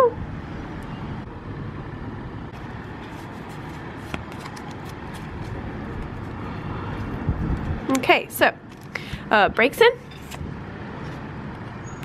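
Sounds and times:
distant traffic hum: 0.0s - 12.0s
trading cards rustling: 2.6s - 9.0s, 10.0s - 10.4s.

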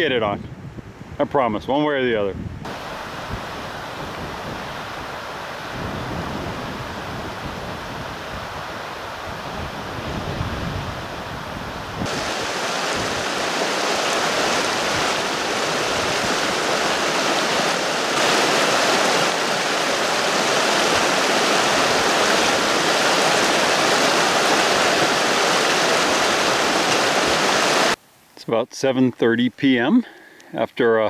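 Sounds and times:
wind rumble on microphone: 0.0s - 28.0s
river rushing over rocks: 2.7s - 28.0s.

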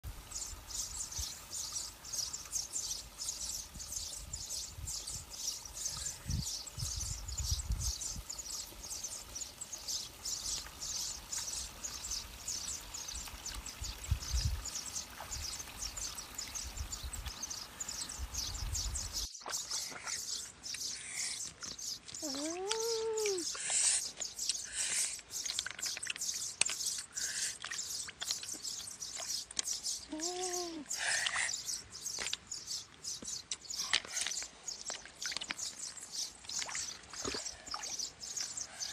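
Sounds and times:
high-pitched chirping: 22.2s - 23.6s.

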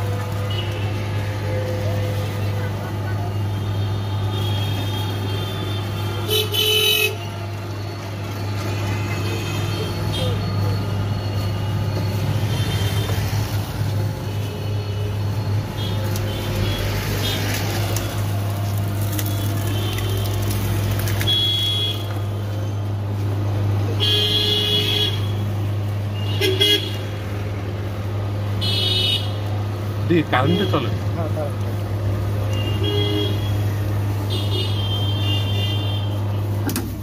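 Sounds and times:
juice machine humming: 0.0s - 37.0s
vehicle horns honking: 0.4s - 1.1s, 3.4s - 7.4s, 21.1s - 22.2s, 23.9s - 25.5s, 26.1s - 27.1s, 28.6s - 29.4s, 30.2s - 31.0s, 32.5s - 36.5s.

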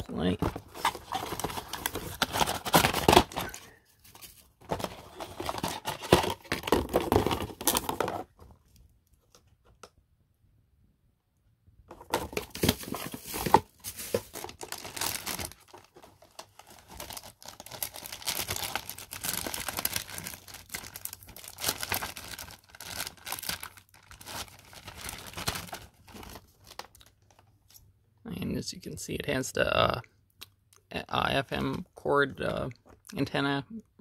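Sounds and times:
plastic packaging crinkling: 0.4s - 8.5s, 12.0s - 27.5s.

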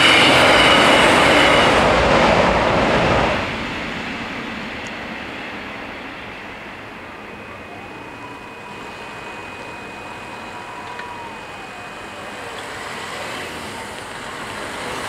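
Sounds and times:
car approaching: 6.5s - 15.0s
barrier motor whining: 7.1s - 15.0s
click: 10.8s - 11.1s.

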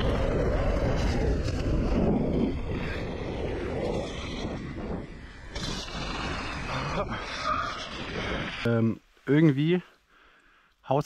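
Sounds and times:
bike tyre and frame rattle: 0.0s - 8.7s
wind rumbling on microphone: 0.0s - 8.7s.

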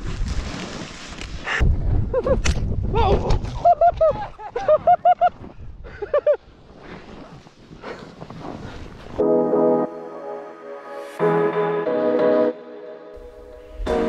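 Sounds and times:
wind rushing over microphone: 1.6s - 4.3s.

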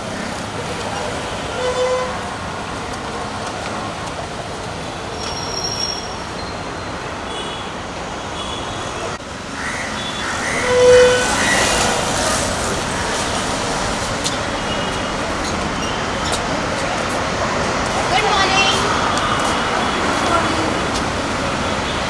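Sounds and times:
street traffic: 0.0s - 22.0s
vehicle horn toots: 10.5s - 11.6s.

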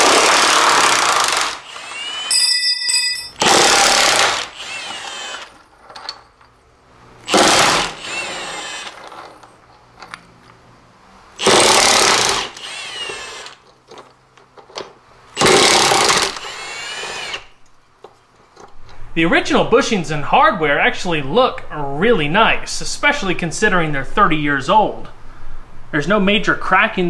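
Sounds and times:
impact wrench hammering bolts: 0.0s - 6.6s, 7.2s - 10.2s, 11.4s - 14.0s, 14.7s - 17.4s.

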